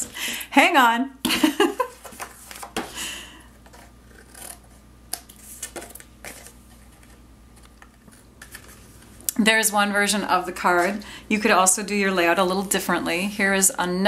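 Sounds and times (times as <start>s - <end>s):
card being handled: 1.9s - 2.9s, 5.2s - 9.3s
scissors snipping paper: 3.7s - 6.0s.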